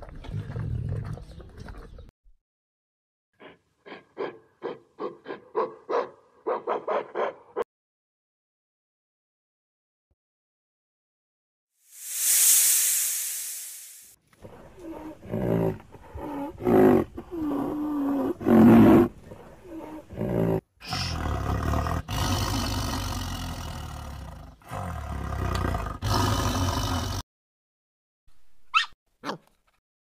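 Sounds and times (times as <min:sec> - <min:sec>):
tiger roaring and growling: 0:14.4 - 0:27.2.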